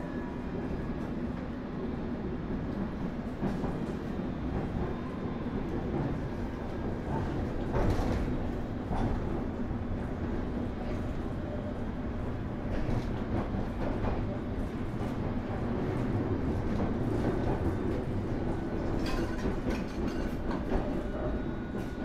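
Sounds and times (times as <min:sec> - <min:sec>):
train rumbling: 0:00.0 - 0:22.0
rail clanks: 0:18.8 - 0:21.0.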